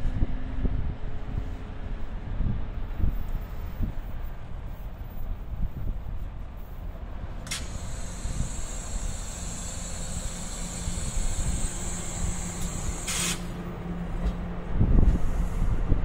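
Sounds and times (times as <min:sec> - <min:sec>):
train air brakes hissing: 0:07.5 - 0:13.6
low steady rumble: 0:10.7 - 0:16.0.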